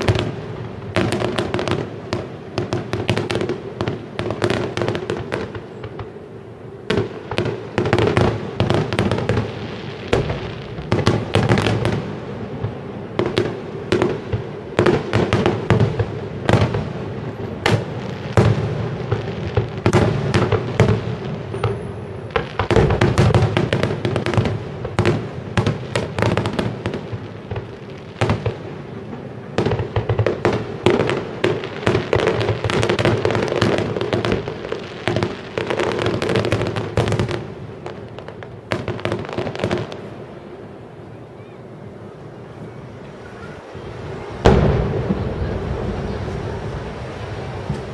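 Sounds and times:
fireworks bursting and crackling: 0.0s - 47.9s.

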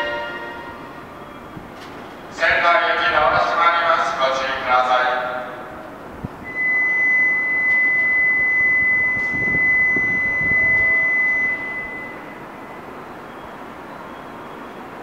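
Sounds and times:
high-pitched electronic warning beep: 6.4s - 13.5s.

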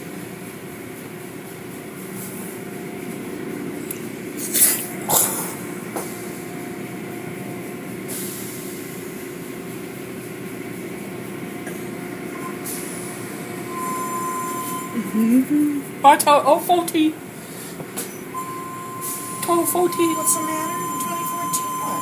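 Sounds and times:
car wash machinery running: 0.0s - 22.0s
steady high tone: 12.3s - 16.8s, 18.3s - 22.0s.

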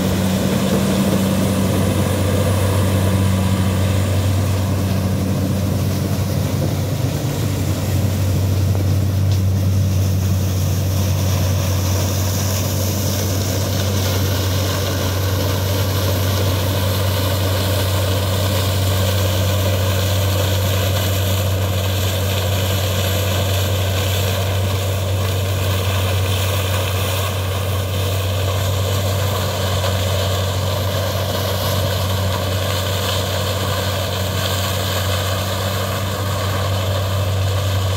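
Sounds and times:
diesel engines droning: 0.0s - 37.9s.

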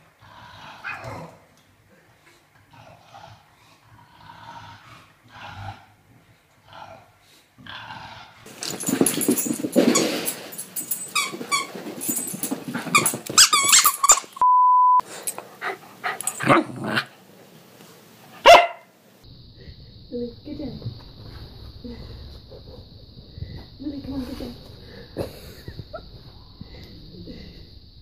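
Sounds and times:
puppy yapping and growling: 0.8s - 1.3s
squeaky toy squeaks: 13.0s - 14.4s
short steady beep: 14.4s - 15.0s.

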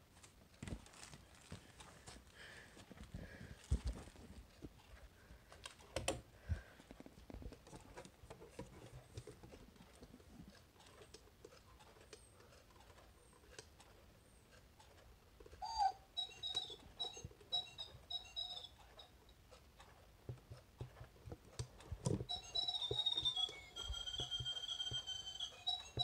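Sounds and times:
clock hands clicking and rubbing: 3.7s - 26.0s
recorded birdsong chirps: 15.6s - 19.2s, 22.1s - 26.0s.

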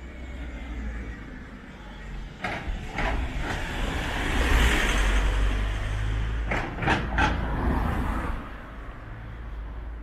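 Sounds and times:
vehicle passing by: 3.0s - 8.7s.

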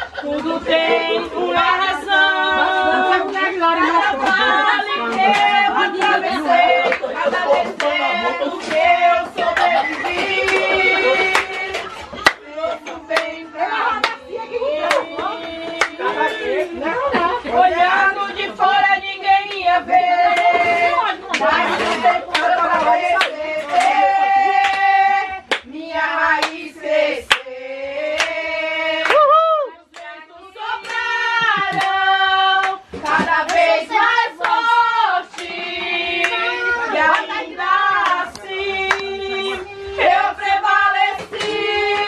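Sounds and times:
people singing a worship song: 0.0s - 42.0s
hands clapping: 5.1s - 7.1s, 7.8s - 8.0s, 8.6s - 14.2s, 14.8s - 16.4s, 20.3s - 20.7s, 21.3s - 24.0s, 24.6s - 27.5s, 28.1s - 28.4s, 29.0s - 30.1s, 30.8s - 33.8s, 34.4s - 37.4s, 38.0s - 40.2s.

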